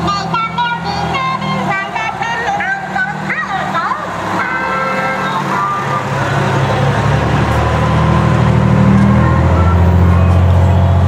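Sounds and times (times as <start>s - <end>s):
christmas music over loudspeakers: 0.0s - 7.0s
fire engine diesel passing: 0.0s - 11.0s.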